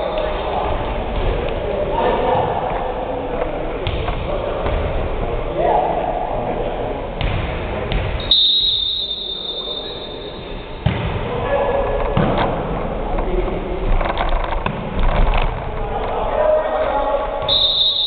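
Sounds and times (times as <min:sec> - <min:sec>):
players' voices: 0:00.0 - 0:18.0
referee whistle: 0:08.2 - 0:10.7, 0:17.5 - 0:18.0.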